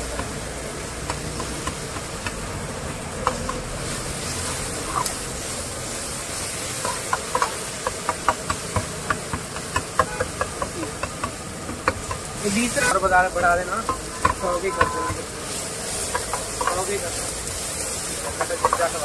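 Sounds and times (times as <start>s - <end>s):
vegetables sizzling in oil: 0.0s - 19.0s
metal ladle scraping a wok: 3.3s - 5.5s.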